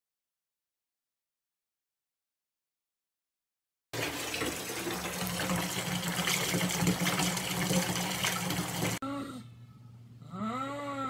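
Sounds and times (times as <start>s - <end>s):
tap water running into bathtub: 4.0s - 9.0s.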